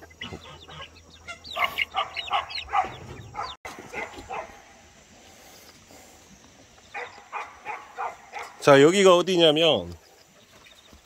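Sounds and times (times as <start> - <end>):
sharp animal calls: 0.0 - 4.5, 6.9 - 8.8.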